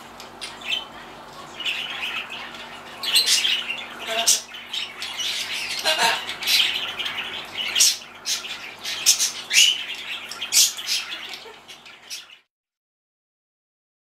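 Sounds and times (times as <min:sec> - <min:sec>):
macaw squawking: 0:01.6 - 0:12.3.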